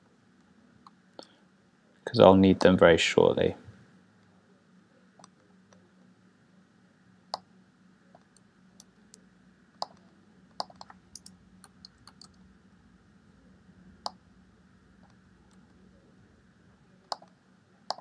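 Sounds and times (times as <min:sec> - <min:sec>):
low steady hum: 0:00.0 - 0:18.0
computer mouse and keyboard clicks: 0:10.6 - 0:12.4, 0:17.1 - 0:18.0.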